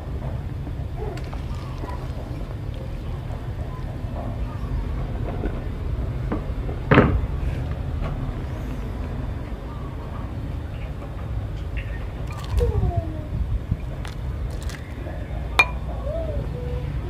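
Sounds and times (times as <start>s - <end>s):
soup boiling in a pot: 0.1s - 8.5s.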